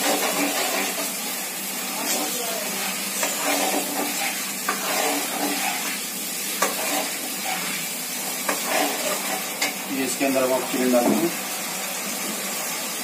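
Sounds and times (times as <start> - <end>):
spatula scraping pan: 0.0 - 1.2, 1.9 - 9.9
garlic sizzling in hot oil: 0.0 - 13.0.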